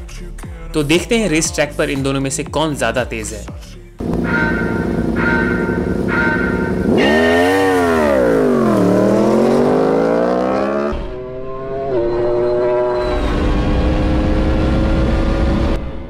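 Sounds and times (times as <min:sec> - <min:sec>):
car engine launching: 0:04.0 - 0:16.0
motorcycle engine launching: 0:04.0 - 0:16.0
countdown beep: 0:04.1 - 0:09.4.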